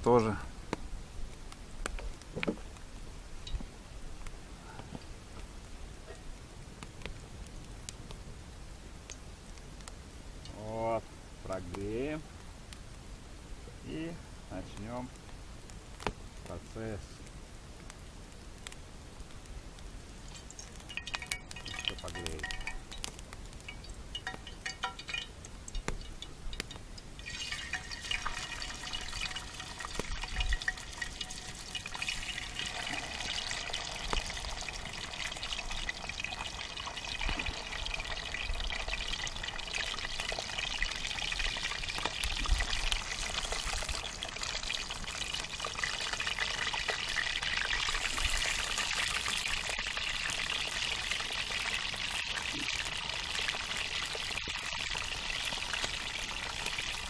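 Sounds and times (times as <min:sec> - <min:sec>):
fish frying in hot oil: 0:20.2 - 0:57.0.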